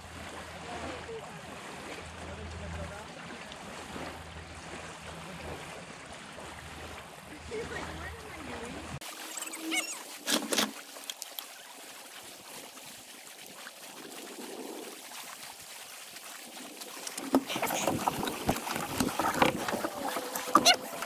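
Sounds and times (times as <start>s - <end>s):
water: 0.0s - 21.0s
wind: 0.0s - 21.0s
camera rubbing and knocking: 9.5s - 10.8s, 17.2s - 21.0s.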